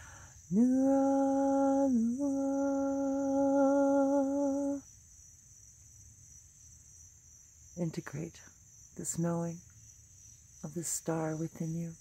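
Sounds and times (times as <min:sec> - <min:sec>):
woman humming: 0:00.0 - 0:04.8
crickets chirring: 0:00.0 - 0:12.0.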